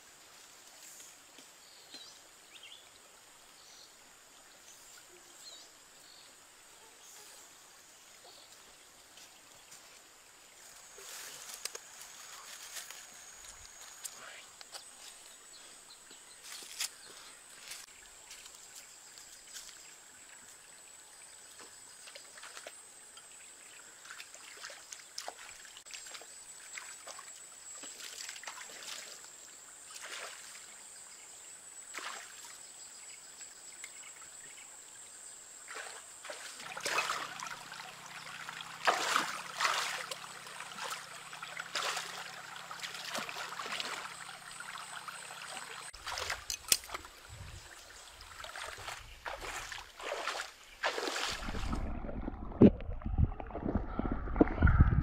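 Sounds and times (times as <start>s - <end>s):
stream water trickling: 0.0s - 55.0s
hands splashing in water: 38.8s - 41.0s, 48.4s - 54.9s.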